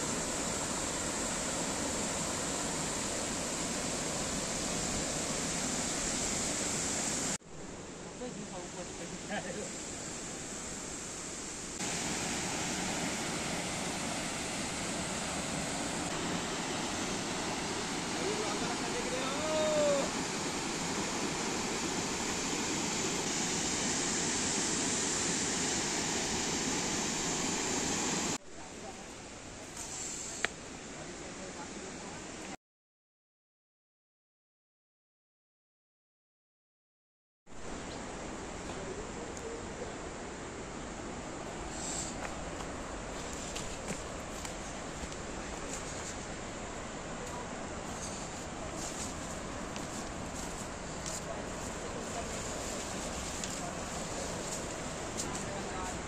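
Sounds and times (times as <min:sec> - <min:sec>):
waterfall rushing: 0:00.0 - 0:07.4, 0:11.8 - 0:28.4.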